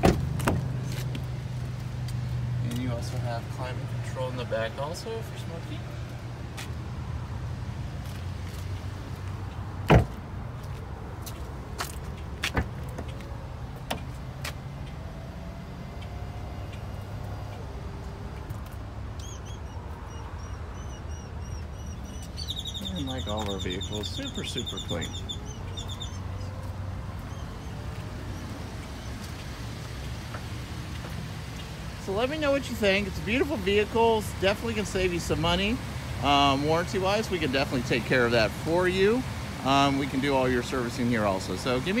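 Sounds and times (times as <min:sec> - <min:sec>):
car door thud: 0:00.0 - 0:00.7, 0:09.8 - 0:10.2, 0:12.5 - 0:12.8
small birds chirping: 0:19.1 - 0:37.9.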